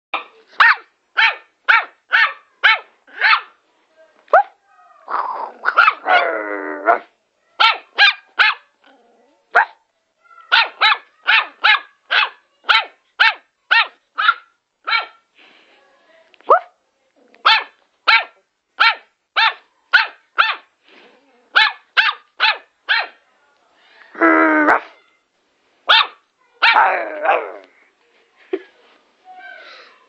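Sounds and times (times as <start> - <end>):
small dog barking sharply: 0.2 - 3.5, 7.6 - 8.6, 10.5 - 15.2, 17.5 - 20.7, 21.6 - 23.2, 25.9 - 26.9.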